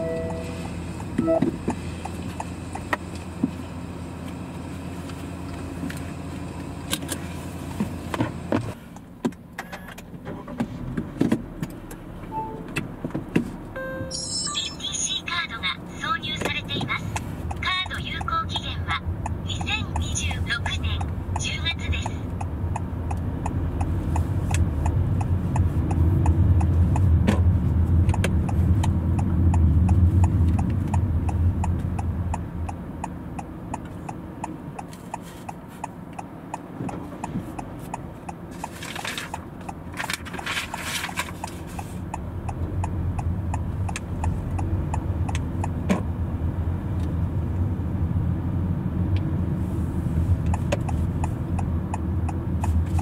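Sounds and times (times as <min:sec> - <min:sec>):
turn signal ticking: 0:00.0 - 0:04.5, 0:15.1 - 0:47.7, 0:50.0 - 0:53.0
car engine and road noise: 0:00.0 - 0:53.0.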